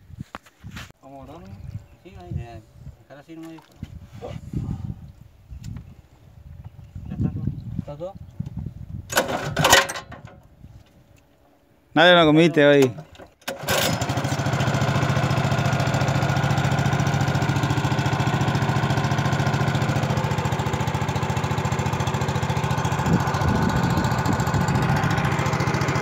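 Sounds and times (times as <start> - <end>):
outboard boat motor running: 13.0 - 26.0.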